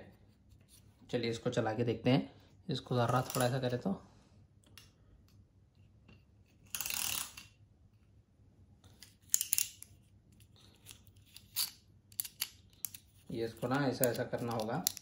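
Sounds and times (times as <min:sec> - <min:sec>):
toy car wheels whirring: 0:06.7 - 0:07.5.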